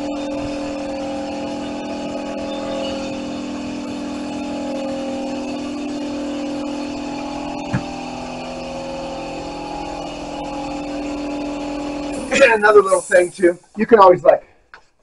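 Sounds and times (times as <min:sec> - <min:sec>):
air compressor running: 0:00.0 - 0:13.7
short knock: 0:07.7 - 0:08.0
spray gun hissing: 0:11.9 - 0:13.7.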